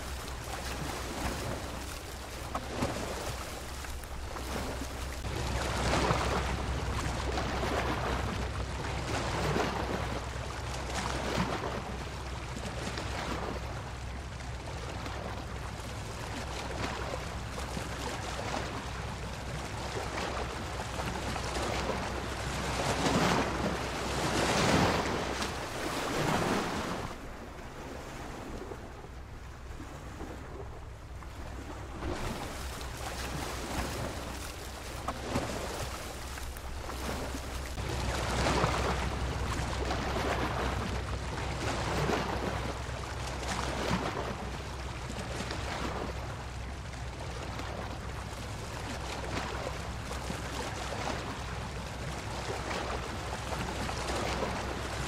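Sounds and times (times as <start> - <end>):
waves breaking: 0.0 - 55.0
low surf rumble: 11.8 - 50.2.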